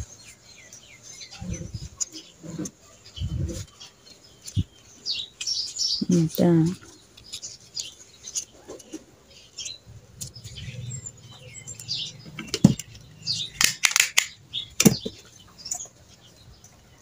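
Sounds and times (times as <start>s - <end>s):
banana leaf rustling and crackling: 1.8s - 10.6s.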